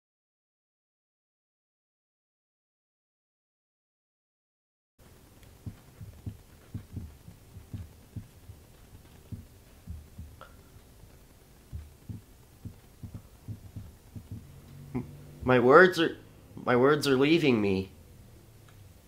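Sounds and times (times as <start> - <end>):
soft low thuds: 5.0 - 15.6
faint steady hum: 5.0 - 19.0.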